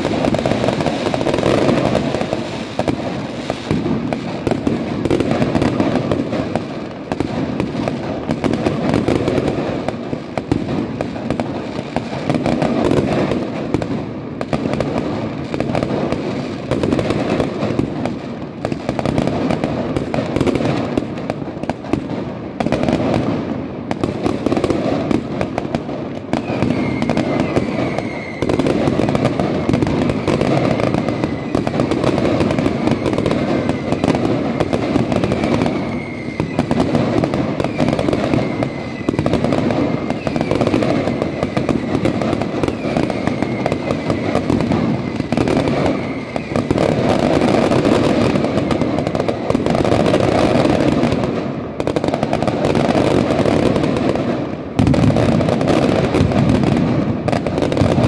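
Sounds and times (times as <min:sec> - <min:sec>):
fireworks bangs and crackle: 0:00.0 - 0:58.0
falling whistle: 0:26.4 - 0:28.6, 0:35.8 - 0:36.8.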